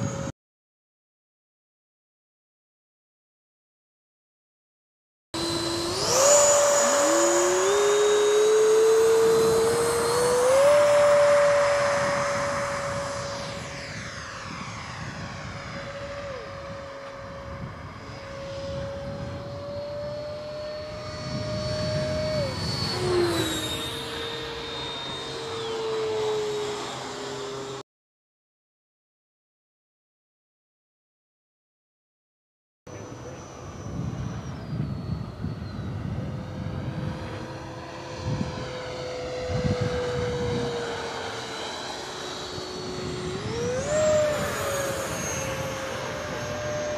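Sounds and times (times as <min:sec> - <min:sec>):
model jet high whine: 0:00.0 - 0:00.3, 0:05.4 - 0:27.8, 0:32.9 - 0:46.9.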